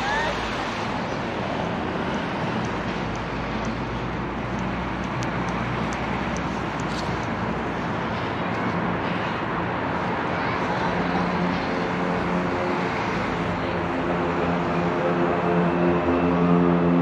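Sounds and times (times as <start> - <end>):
road traffic: 0.0 - 17.0
faint light ticks: 2.6 - 3.8, 4.5 - 7.3.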